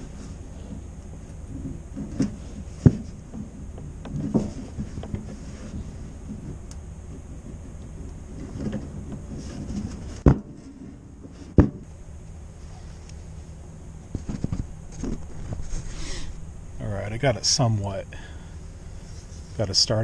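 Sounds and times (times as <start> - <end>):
small bumps: 0.0 - 11.9, 14.0 - 16.3
low background rumble: 0.0 - 20.0.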